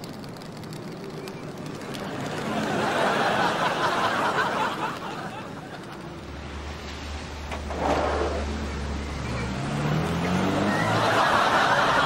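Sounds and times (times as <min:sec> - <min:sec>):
audience laughing: 0:02.1 - 0:06.2, 0:10.6 - 0:12.0.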